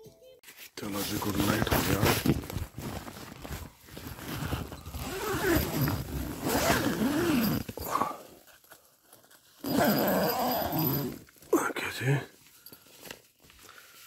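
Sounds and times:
nylon fabric rustling: 0.4s - 11.5s
zipper being pulled: 1.3s - 8.2s, 9.6s - 11.3s.

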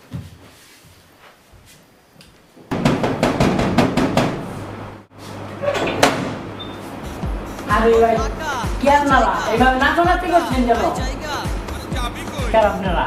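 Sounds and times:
banging on a metal door: 2.7s - 4.5s, 5.7s - 6.5s.

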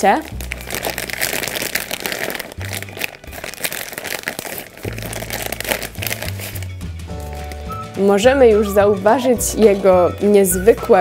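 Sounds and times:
plastic bag crinkling: 0.0s - 8.1s
background music: 0.0s - 11.0s.

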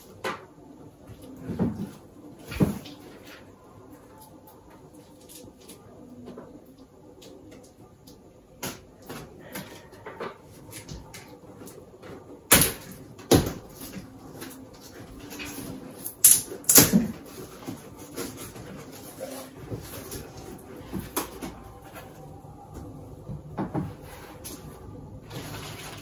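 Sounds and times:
cardboard scraping and rustling: 23.8s - 26.0s.

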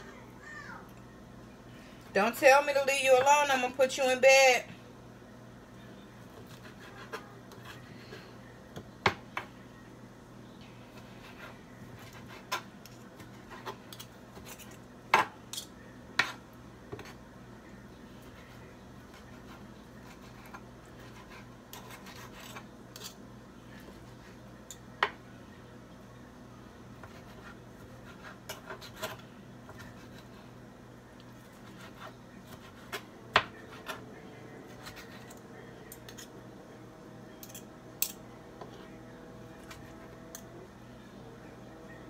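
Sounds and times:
low steady hum: 0.0s - 42.0s.

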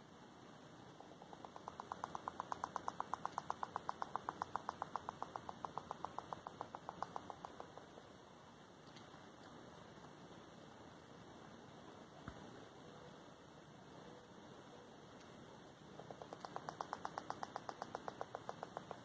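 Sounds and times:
porcupine gnawing wood: 1.1s - 8.0s, 16.0s - 19.0s.

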